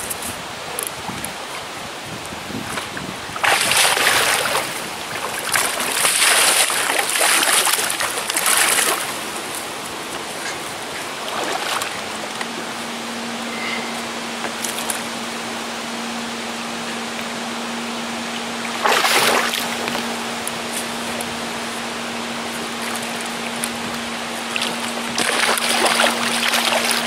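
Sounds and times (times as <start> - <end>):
soft wash of water: 0.0 - 27.0
steady low hum: 0.0 - 27.0
fish splashing and thrashing: 2.6 - 12.8, 18.4 - 27.0.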